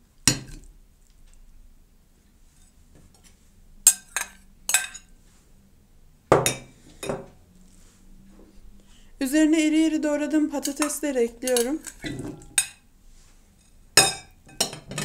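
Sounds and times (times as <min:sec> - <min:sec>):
metal spoon clinking on glass: 0:03.9 - 0:05.1, 0:10.6 - 0:12.8, 0:14.0 - 0:15.0.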